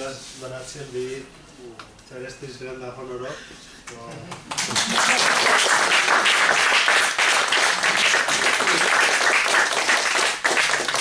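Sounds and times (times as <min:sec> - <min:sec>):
audience applauding: 0:04.5 - 0:11.0.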